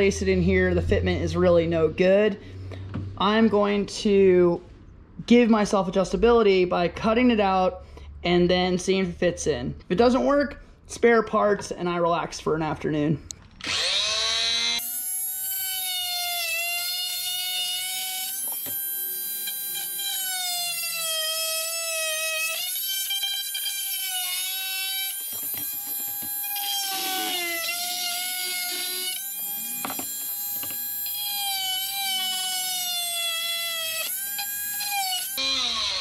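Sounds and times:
oscillating tool cutting plastic: 13.6s - 36.0s.

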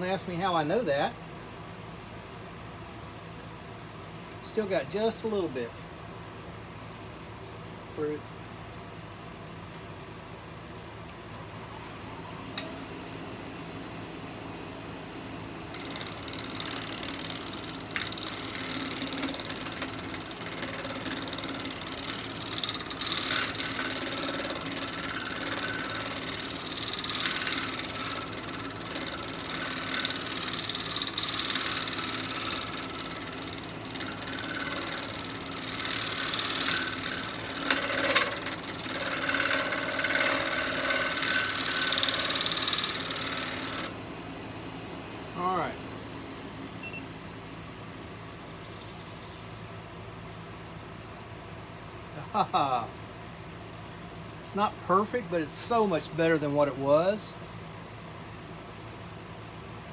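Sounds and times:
lathe motor humming: 11.4s - 48.3s
gouge cutting wood shavings hiss: 18.0s - 43.9s.

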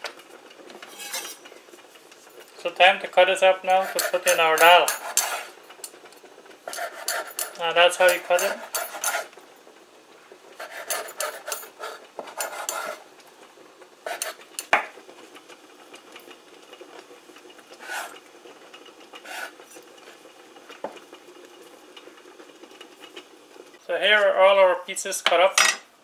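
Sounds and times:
knife scraping through dough: 0.8s - 1.5s, 3.7s - 5.6s, 6.7s - 9.4s, 10.6s - 13.0s, 14.0s - 14.5s, 17.8s - 18.2s, 19.2s - 19.8s.

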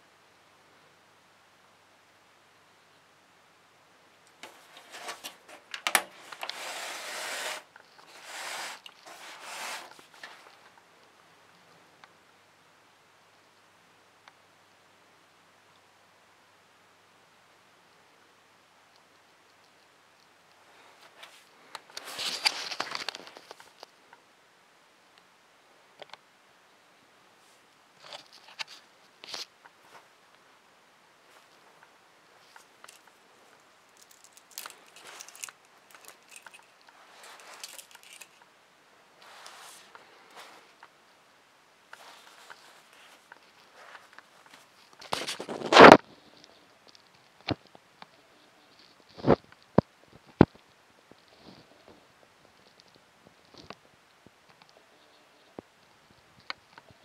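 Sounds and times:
handling rustling and clicking: 4.3s - 10.8s, 21.0s - 23.9s, 31.3s - 38.5s, 41.9s - 47.7s
case sliding over carpet: 4.4s - 10.4s.

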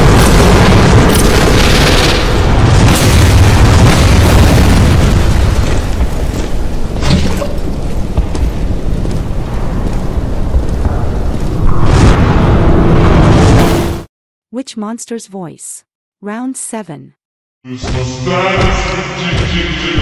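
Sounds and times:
explosion with deep rumbling: 0.0s - 14.1s.

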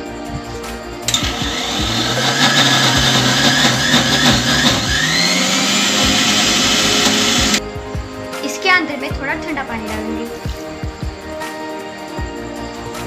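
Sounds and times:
mixer grinder running: 1.1s - 7.6s.

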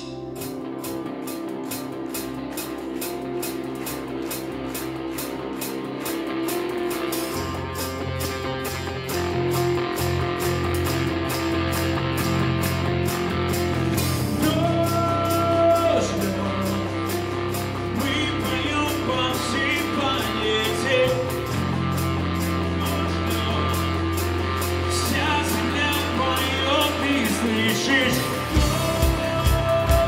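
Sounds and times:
cymbal ticks: 0.0s - 29.3s
bass notes: 0.0s - 30.0s
electric guitars: 0.0s - 30.0s
person singing: 13.6s - 30.0s.

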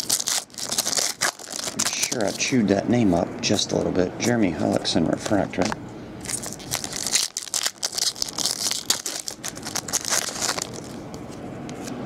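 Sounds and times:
foil wrapper tearing and crinkling: 0.0s - 2.6s, 6.2s - 11.0s.

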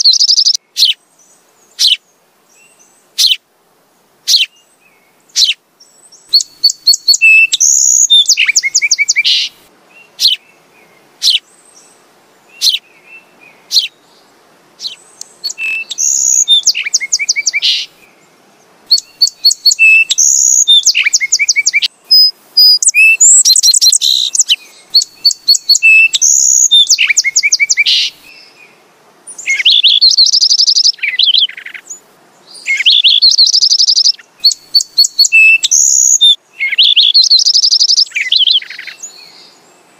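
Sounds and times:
sparrow chirping and trilling: 0.0s - 1.0s, 1.8s - 2.0s, 3.1s - 3.4s, 4.3s - 4.5s, 5.3s - 5.6s, 6.2s - 10.4s, 11.2s - 11.6s, 12.6s - 12.8s, 13.7s - 14.0s, 14.8s - 17.9s, 18.9s - 28.2s, 29.3s - 32.0s, 32.6s - 39.4s.

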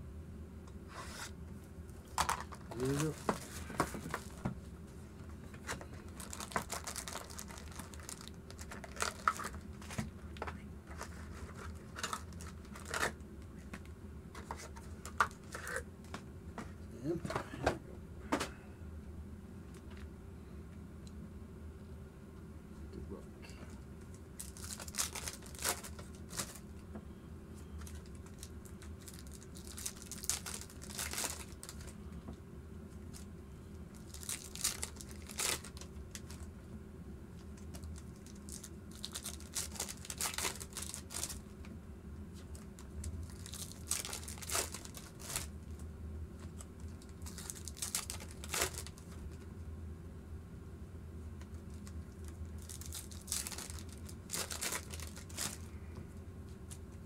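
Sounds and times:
steady low hum: 0.0s - 57.0s
wrappers tearing and crinkling: 2.0s - 4.4s, 5.6s - 13.2s, 14.4s - 15.8s, 24.4s - 26.6s, 27.8s - 32.0s, 33.9s - 36.5s, 37.4s - 41.4s, 42.4s - 45.6s, 46.4s - 49.2s, 51.6s - 55.8s.

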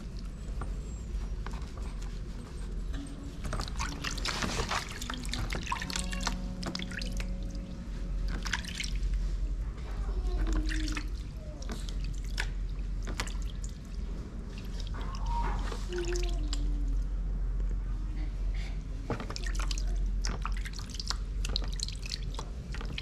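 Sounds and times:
water dripping and splashing in basin: 3.4s - 9.3s, 10.2s - 17.1s, 19.1s - 23.0s.

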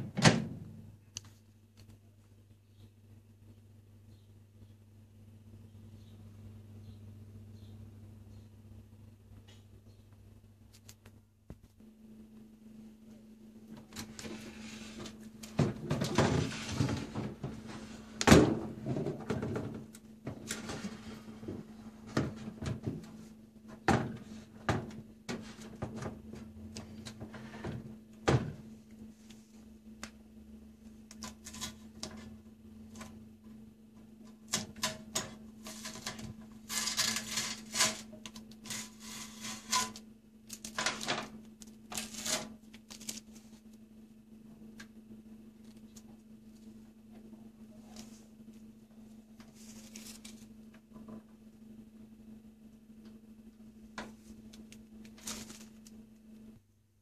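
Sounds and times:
packing tape being peeled: 35.6s - 43.5s, 54.5s - 56.0s.

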